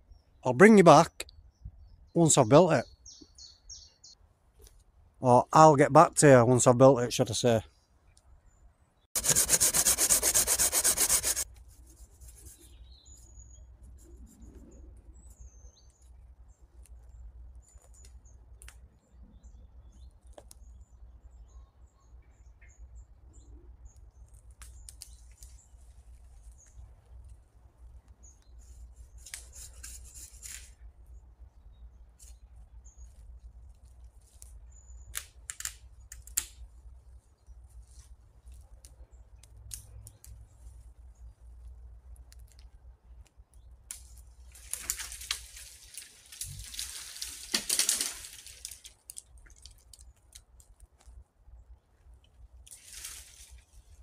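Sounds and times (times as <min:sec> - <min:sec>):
loud fast rasping scrape: 0:09.2 - 0:11.5
clicks and rustles: 0:42.1 - 0:51.2.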